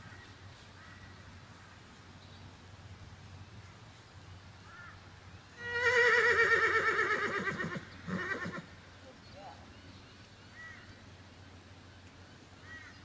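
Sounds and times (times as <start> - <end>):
horse whinnying: 5.6 - 8.7.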